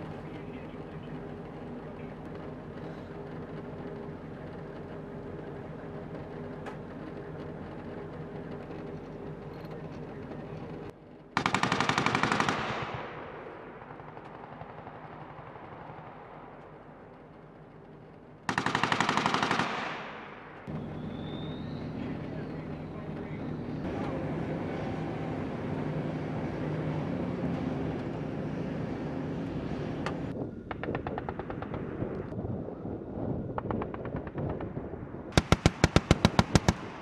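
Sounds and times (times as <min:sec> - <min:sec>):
diesel engine running: 0:00.0 - 0:12.6, 0:13.4 - 0:32.4
machine-gun fire burst: 0:11.4 - 0:16.2, 0:18.5 - 0:21.2, 0:35.3 - 0:37.0
gunfire echo: 0:11.4 - 0:17.2, 0:18.5 - 0:21.6, 0:33.6 - 0:37.0.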